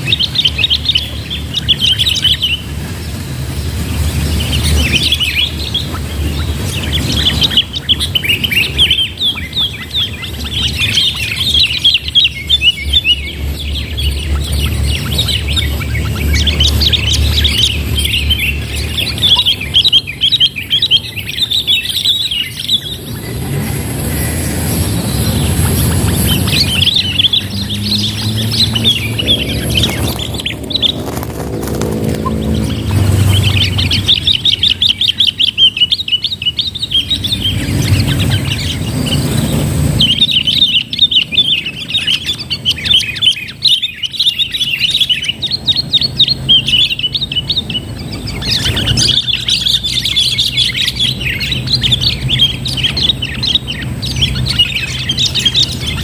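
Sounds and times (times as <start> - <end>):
low droning: 0.0 - 43.6
birds chattering calls: 0.0 - 56.0.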